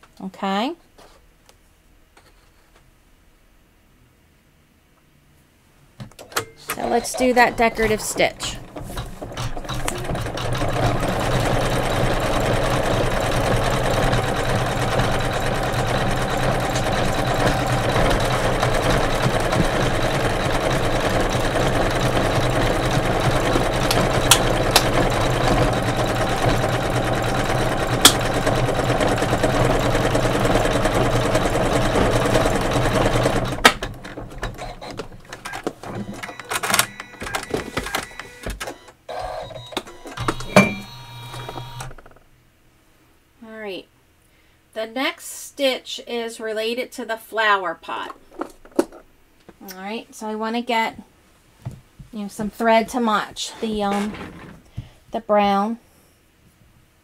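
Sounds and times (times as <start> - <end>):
embroidery machine sewing: 6.8 - 42.1.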